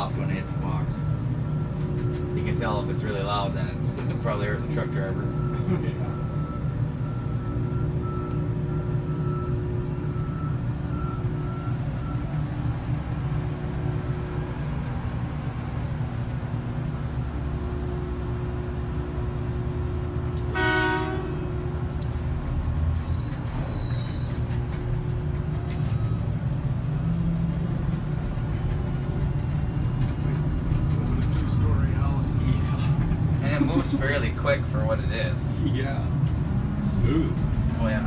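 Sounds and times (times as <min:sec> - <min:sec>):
heavy machinery droning: 0:00.0 - 0:38.0
horn blast: 0:20.5 - 0:21.7.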